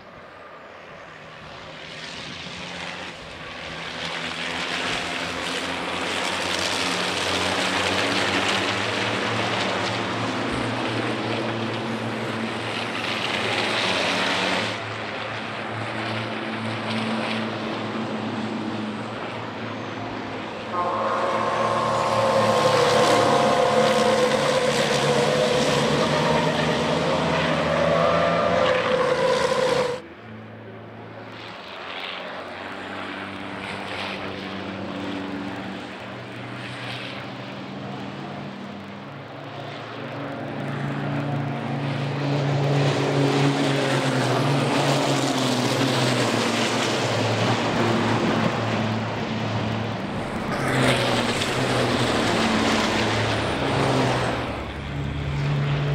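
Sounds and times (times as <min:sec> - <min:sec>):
truck diesel engines passing: 0:00.0 - 0:55.9.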